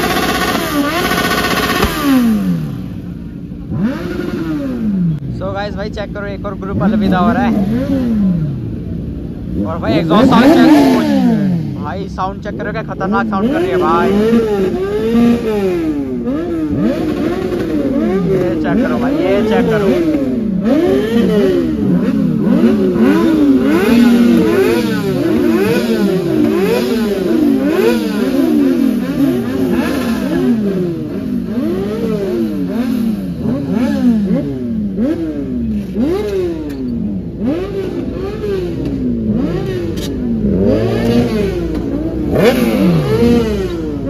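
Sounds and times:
superbike engines revving: 0:00.0 - 0:44.0.

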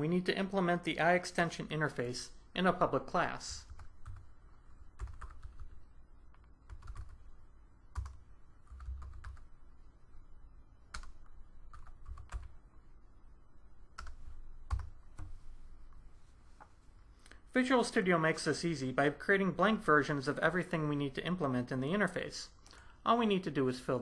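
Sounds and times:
typing on computer keyboard: 0:03.6 - 0:04.3, 0:05.0 - 0:05.8, 0:06.4 - 0:07.2, 0:07.9 - 0:09.5, 0:10.9 - 0:12.5, 0:14.0 - 0:15.3.

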